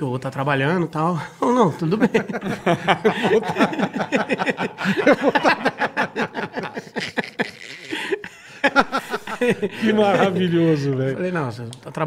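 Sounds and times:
men laughing: 1.5s - 11.0s.

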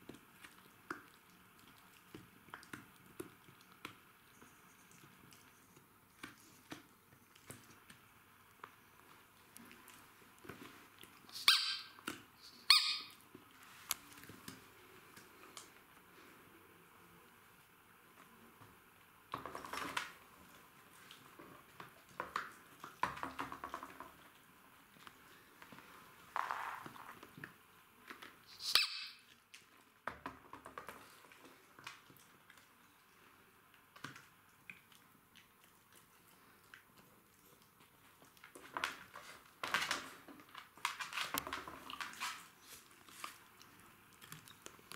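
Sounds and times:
dogs chewing: 0.0s - 11.4s, 30.6s - 44.9s
rubber ball squeaking: 11.4s - 13.2s, 28.5s - 29.3s
soft clicks and rustles: 13.2s - 16.4s.

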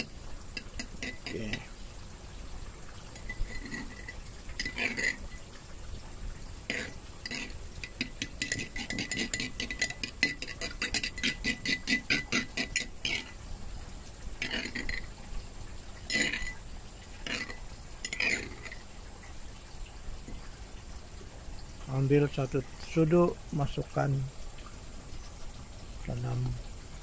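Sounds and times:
metal spoon scraping ceramic bowl: 0.0s - 1.7s, 3.2s - 5.4s, 6.7s - 13.4s, 14.4s - 15.1s, 16.1s - 16.6s, 17.2s - 18.8s.

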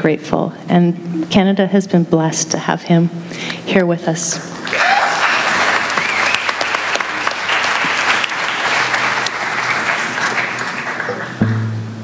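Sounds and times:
audience applauding: 4.6s - 11.6s
low plucked note: 11.3s - 12.0s.

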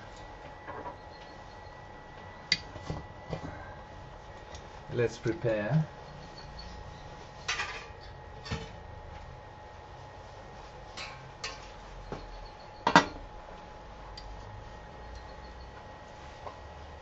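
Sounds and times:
metal pans clattering: 7.5s - 8.8s.

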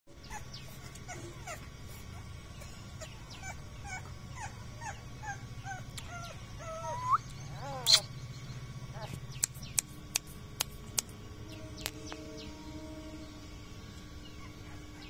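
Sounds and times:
low hum: 0.1s - 15.0s
puppy whimpering: 0.2s - 8.1s.

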